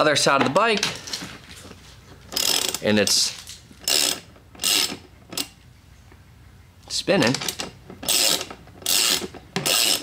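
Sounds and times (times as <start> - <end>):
ratchet wrench clicking: 2.4 - 2.9, 3.8 - 5.6, 7.6 - 10.0.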